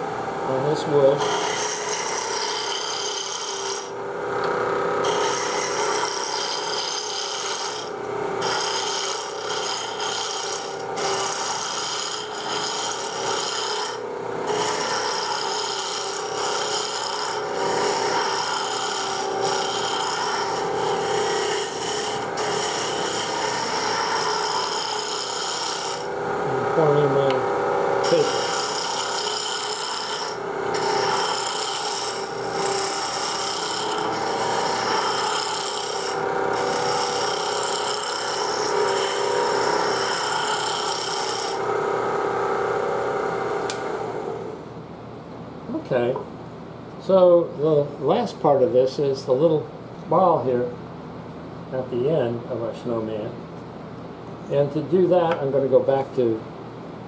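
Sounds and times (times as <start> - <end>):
gouge shaving wood on a lathe: 1.0 - 4.0, 5.0 - 26.2, 28.0 - 41.8
lathe motor hum: 1.2 - 44.6.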